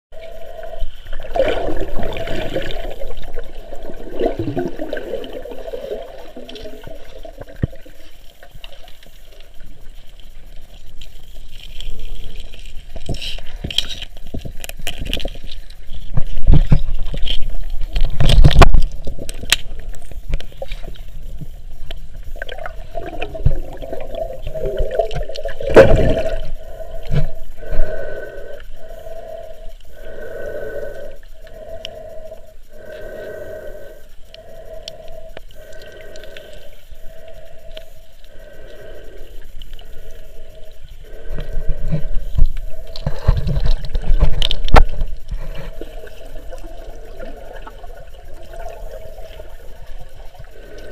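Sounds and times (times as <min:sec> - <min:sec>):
water gurgling underwater: 0:00.6 - 0:09.0, 0:22.2 - 0:27.9.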